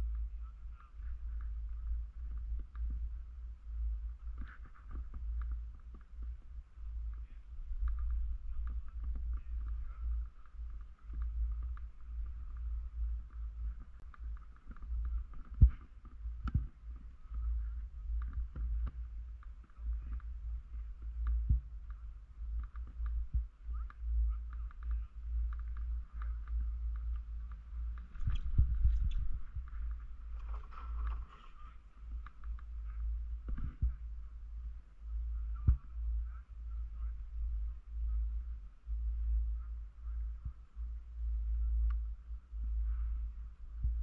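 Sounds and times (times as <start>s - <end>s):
faint steady hiss: 0.0s - 44.0s
wind buffeting microphone: 0.0s - 44.0s.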